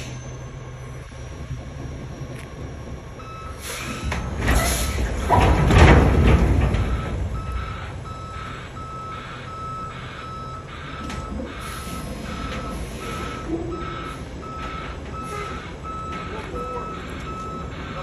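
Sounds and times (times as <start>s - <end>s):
truck engine running: 0.0s - 18.0s
backup alarm beeping: 2.0s - 4.6s, 6.1s - 18.0s.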